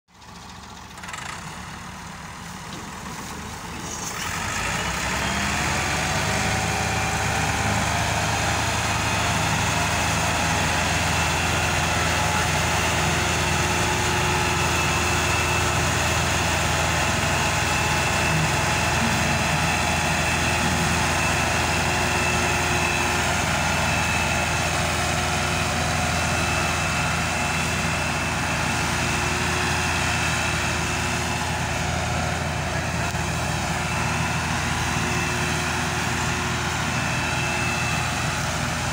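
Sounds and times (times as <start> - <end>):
tractor diesel engine running: 0.1 - 38.9.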